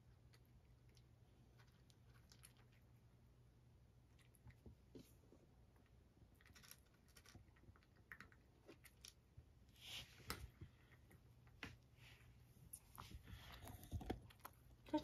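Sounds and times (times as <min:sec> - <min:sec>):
cat crunching dry kibble: 0:00.0 - 0:03.0, 0:06.3 - 0:09.2.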